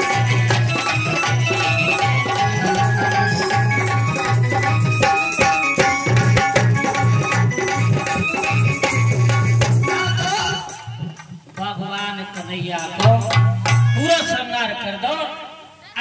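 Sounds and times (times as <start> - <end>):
electronic keyboard melody: 0.0 - 11.0
hand drum rhythm: 0.0 - 14.3.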